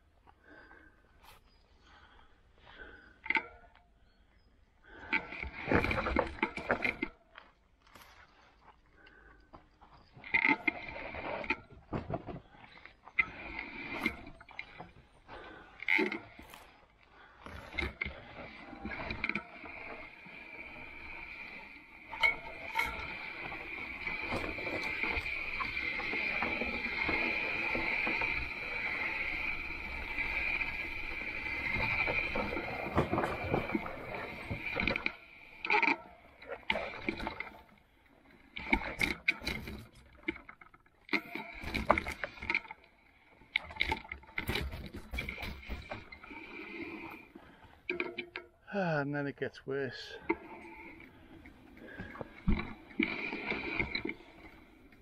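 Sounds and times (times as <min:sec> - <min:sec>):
bike chain clicks and knocks: 0:17.4 - 0:37.6
electric bike motor whine: 0:17.8 - 0:36.4.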